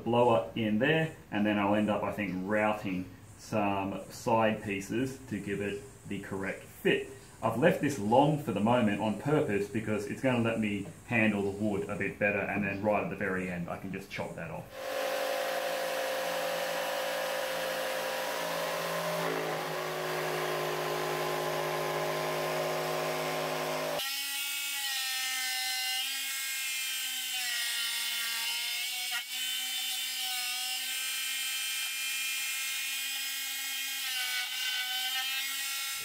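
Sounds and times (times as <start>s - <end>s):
router motor whine: 14.7s - 24.3s
bit cutting wood hiss: 14.7s - 24.7s.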